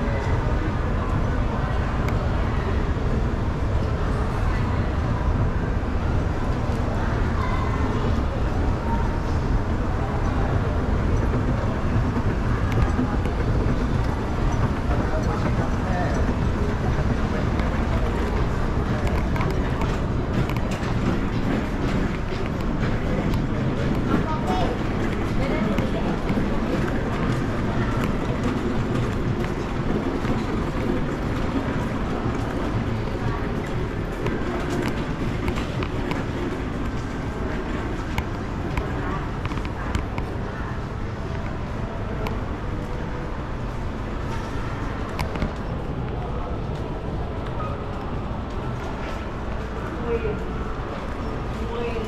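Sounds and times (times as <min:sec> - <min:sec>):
escalator low rumble: 0:00.0 - 0:52.0.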